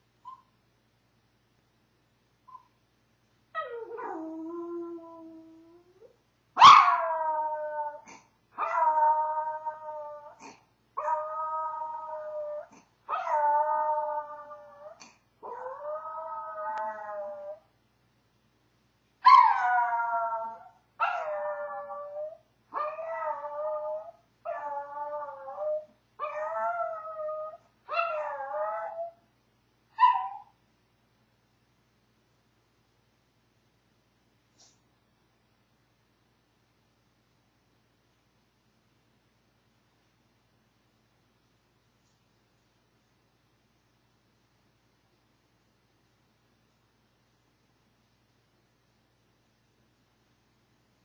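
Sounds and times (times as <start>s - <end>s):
dog howling: 11.0s - 17.6s.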